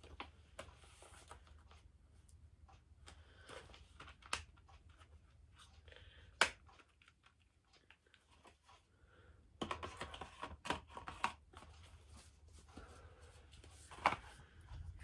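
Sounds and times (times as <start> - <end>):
booklet rustling: 9.8 - 15.0.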